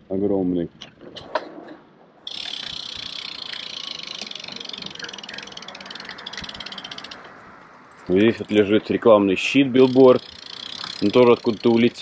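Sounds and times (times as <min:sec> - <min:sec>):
bicycle freewheel ticking: 0:00.0 - 0:01.0, 0:02.2 - 0:07.4, 0:09.7 - 0:12.0.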